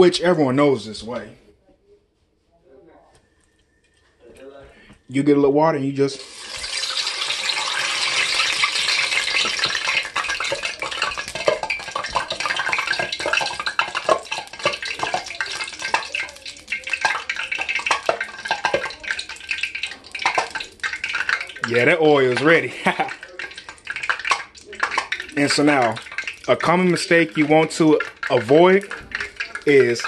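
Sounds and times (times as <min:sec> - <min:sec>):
hot oil sizzling and crackling: 0:06.1 - 0:30.0.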